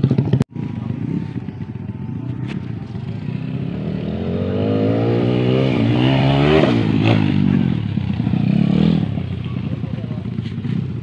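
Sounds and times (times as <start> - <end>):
dirt bike engine accelerating: 0.0 - 11.0.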